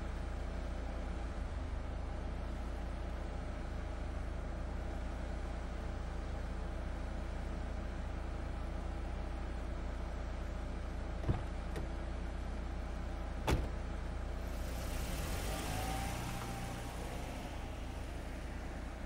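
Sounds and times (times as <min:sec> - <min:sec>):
car engine idling: 0:00.0 - 0:19.0
knocks: 0:11.2 - 0:11.9
hiss: 0:14.4 - 0:19.0.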